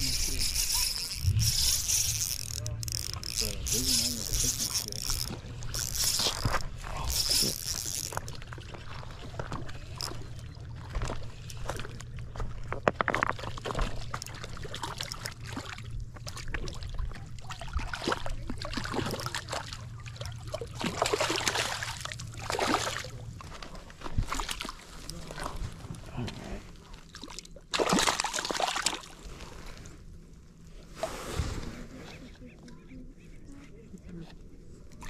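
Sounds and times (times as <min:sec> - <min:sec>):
low hum: 0:00.0 - 0:27.7
water sloshing and trickling: 0:00.0 - 0:32.9.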